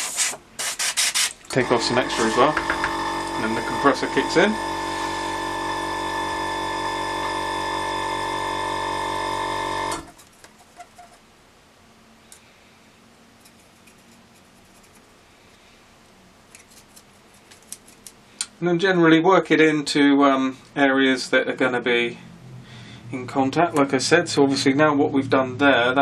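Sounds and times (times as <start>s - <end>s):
paintbrush brushing: 0.0s - 1.4s, 2.0s - 2.6s, 13.4s - 15.2s
airbrush compressor humming: 1.5s - 10.1s.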